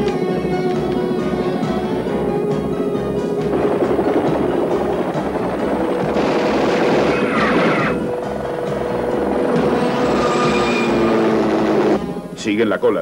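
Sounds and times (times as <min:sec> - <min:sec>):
helicopter rotor thudding: 0:03.2 - 0:10.2.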